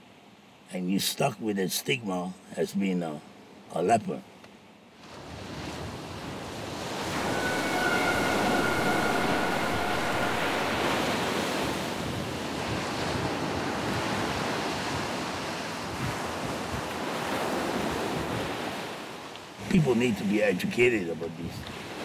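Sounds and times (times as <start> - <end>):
wind: 0.0 - 22.0
ocean surf washing: 5.2 - 12.4.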